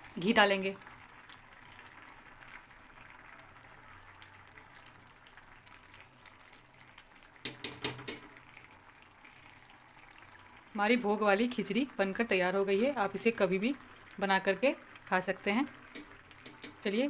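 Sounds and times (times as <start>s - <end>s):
food bubbling in a pan: 0.0s - 17.0s
spoon clicking against pan: 7.4s - 8.3s, 15.9s - 16.9s
spoon stirring: 7.4s - 8.3s, 15.9s - 16.9s.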